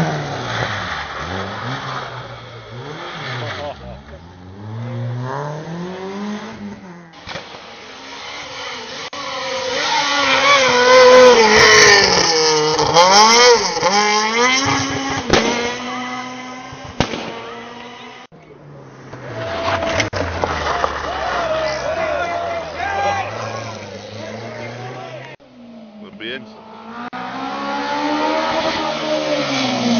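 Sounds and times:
rally car engine accelerating: 0.0 - 29.9
rally car passing on gravel: 0.0 - 29.9
sharp cracks: 16.9 - 17.5.

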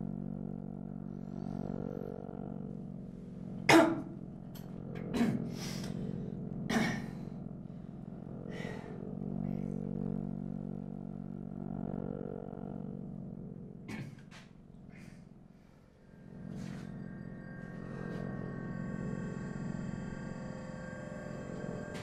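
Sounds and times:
steady low drone: 0.0 - 22.0
man coughing: 3.7 - 4.2, 5.0 - 5.8, 6.7 - 7.2, 13.9 - 14.3.

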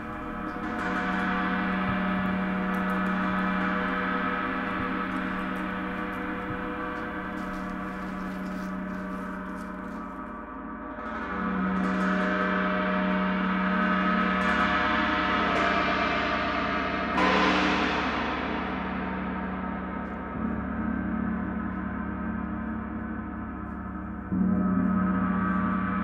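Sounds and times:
large gong ringing: 0.0 - 9.4.

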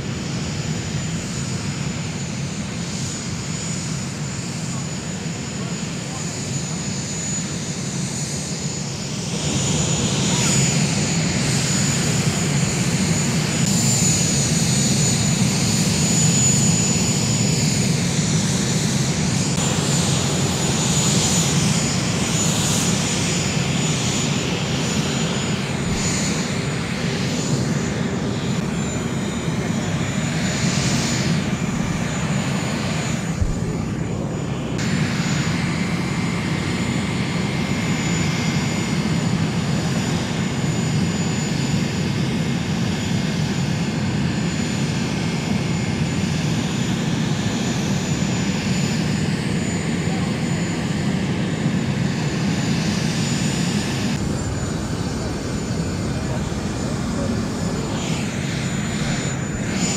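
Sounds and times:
jet engines running: 0.0 - 59.9.

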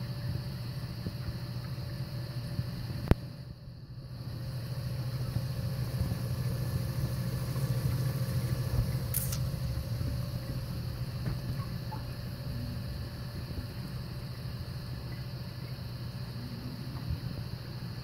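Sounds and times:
pumps humming: 0.0 - 18.0
bubbling water hiss: 4.2 - 17.7
sharp click: 9.1 - 9.5.

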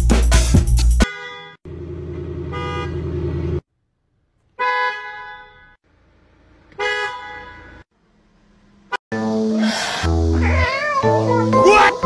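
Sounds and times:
vehicle horn honking: 1.0 - 1.6, 2.4 - 3.1, 4.6 - 5.8, 6.8 - 7.8
engine rumble: 1.7 - 4.3.

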